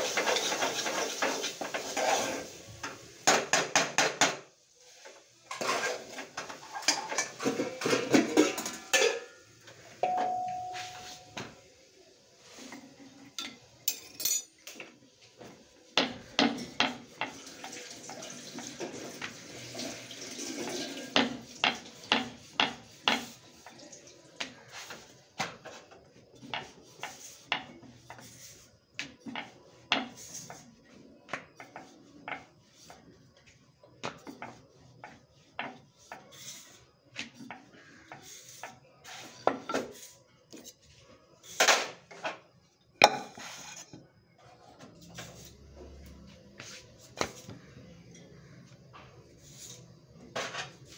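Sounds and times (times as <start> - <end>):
utensils knocking on wooden board: 21.2 - 23.3.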